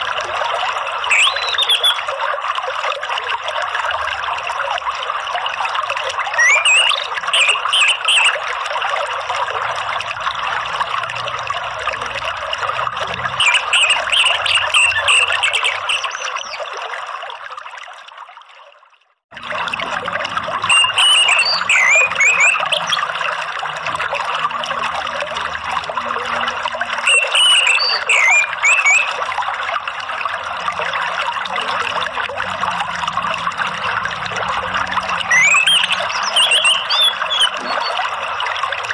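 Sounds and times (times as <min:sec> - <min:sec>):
water trickling: 0:00.0 - 0:38.9
birds chirping: 0:01.1 - 0:02.0, 0:06.4 - 0:08.4, 0:13.4 - 0:16.6, 0:20.7 - 0:23.0, 0:27.1 - 0:29.2, 0:35.2 - 0:38.0.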